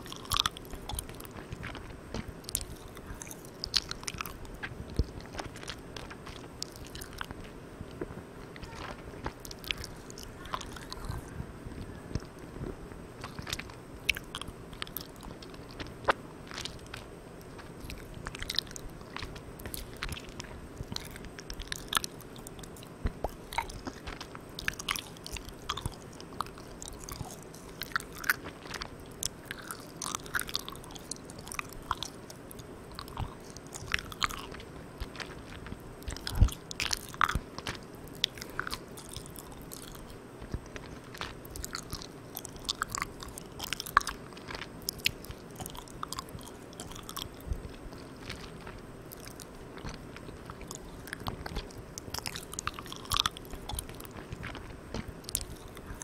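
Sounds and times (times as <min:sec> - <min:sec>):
mouth chewing sticky candy: 0:00.0 - 0:56.0
recorder hiss: 0:00.0 - 0:56.0.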